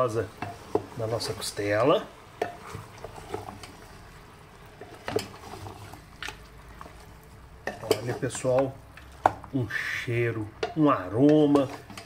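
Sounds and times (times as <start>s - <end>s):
meat sizzling: 0.0s - 12.0s
spoon stirring in a pot: 0.1s - 9.6s, 10.2s - 12.0s
spoon knocking against pot: 10.6s - 12.0s.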